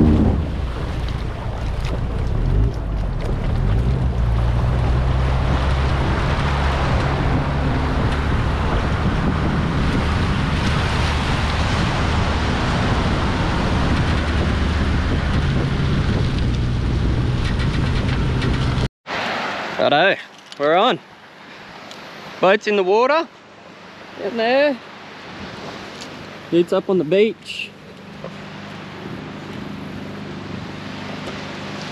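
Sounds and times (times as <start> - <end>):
vehicle engine running: 0.0 - 18.9
wind on microphone: 0.0 - 18.9
water washing around trailer: 0.0 - 31.9.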